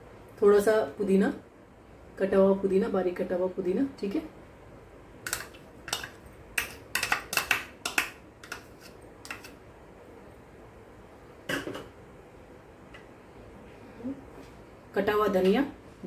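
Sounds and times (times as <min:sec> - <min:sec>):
spoon tapping plastic bowl: 0:05.3 - 0:08.7.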